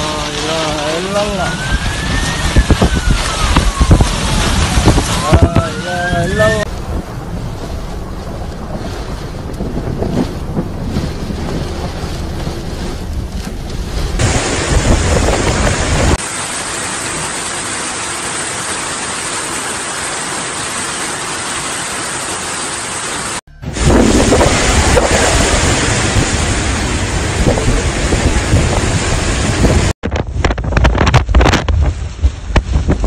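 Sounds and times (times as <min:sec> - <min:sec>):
heavy rain pouring: 0:00.0 - 0:30.0
wind buffeting microphone: 0:01.4 - 0:16.2, 0:23.6 - 0:33.0.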